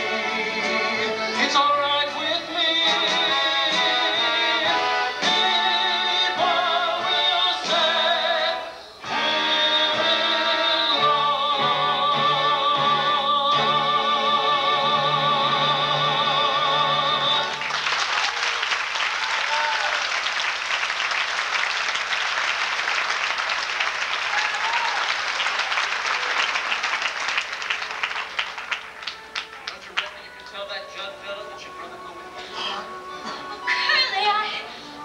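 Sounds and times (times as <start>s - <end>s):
man and woman singing duet: 0.0s - 17.6s
audience applause: 17.4s - 30.5s.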